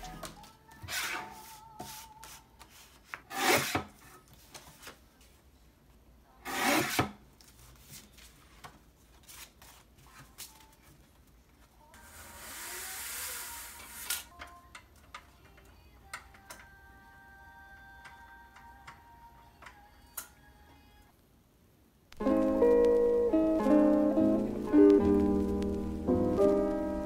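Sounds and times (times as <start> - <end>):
rubbing or scraping: 0.0 - 4.8, 6.4 - 8.4
hiss: 12.0 - 14.3.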